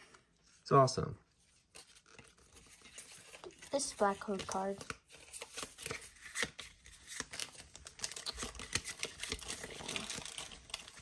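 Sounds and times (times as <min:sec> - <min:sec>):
foil wrapper crinkling and tearing: 0:01.7 - 0:11.0.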